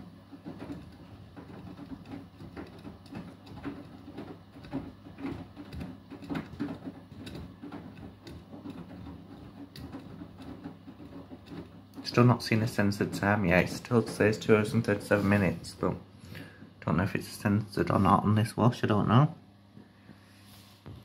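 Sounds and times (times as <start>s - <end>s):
wet laundry splashing and knocking: 0.0s - 16.0s
washing machine motor hum: 0.0s - 21.0s.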